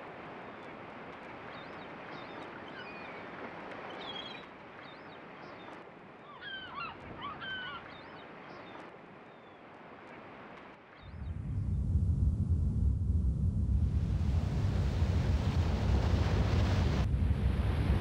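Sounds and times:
bird calls: 1.5 - 9.6
steady rushing noise: 11.2 - 18.0.

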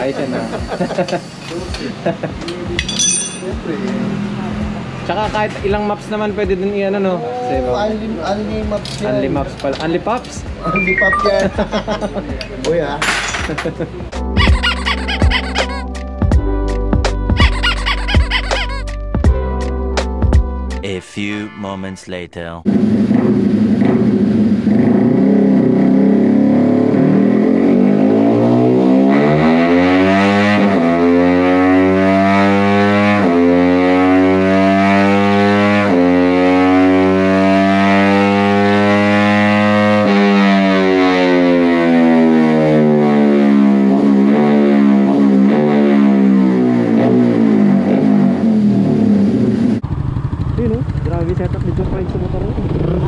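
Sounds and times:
motorcycle engine revving: 22.7 - 53.0.

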